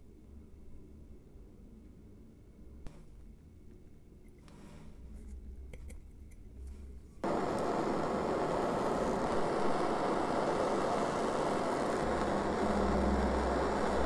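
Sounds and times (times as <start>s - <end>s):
gas torch flame hissing: 7.2s - 14.0s.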